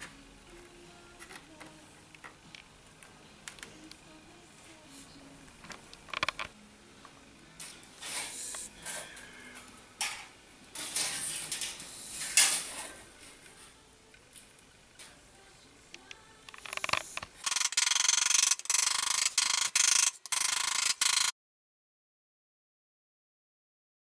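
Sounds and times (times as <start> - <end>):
handling of ruler and sheet metal: 10.0 - 13.0.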